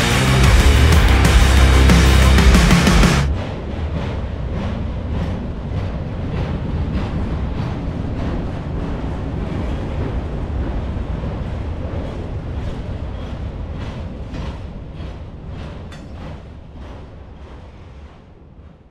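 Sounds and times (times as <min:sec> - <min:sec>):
freight train rumble: 0:00.0 - 0:18.9.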